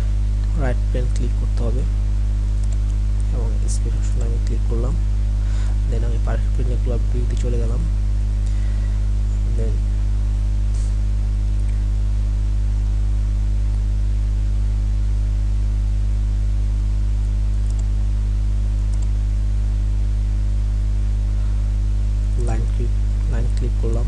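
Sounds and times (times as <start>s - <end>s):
electrical mains hum: 0.0s - 24.0s
faint clicks: 17.6s - 17.9s.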